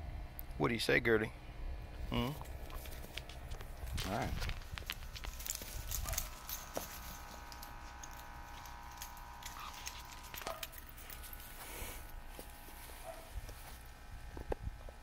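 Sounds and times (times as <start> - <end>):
dog rustling on grass: 2.6 - 14.0.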